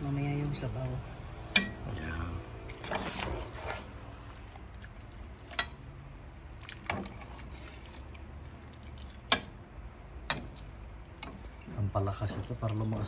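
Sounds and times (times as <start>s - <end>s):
faint low hum: 0.0s - 13.0s
ladle clinking against pot and dish: 1.5s - 1.8s.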